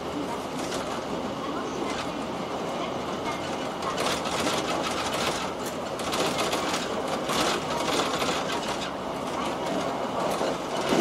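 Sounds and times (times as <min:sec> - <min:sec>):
train cabin rumble: 0:00.0 - 0:11.0
wheels clicking over track: 0:03.2 - 0:11.0.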